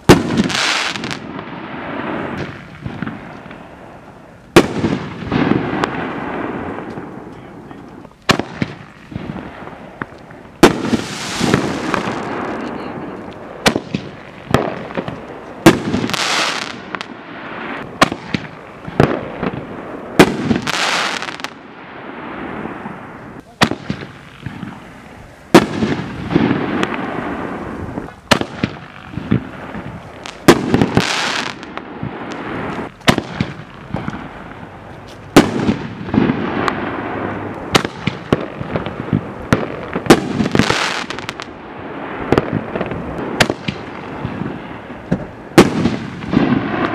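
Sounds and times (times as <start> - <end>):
fireworks hissing: 0.0 - 19.6, 20.2 - 21.6
fireworks launch reports: 0.0 - 46.9.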